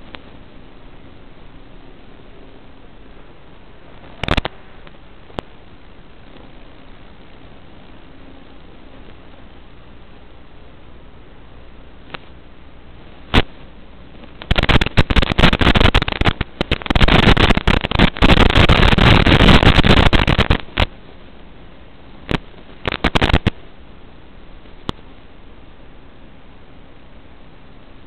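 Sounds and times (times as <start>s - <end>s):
broken static crackling: 0.0s - 28.0s
radio static hiss: 0.0s - 28.0s
sharp clicks: 14.2s - 20.9s, 22.3s - 23.6s.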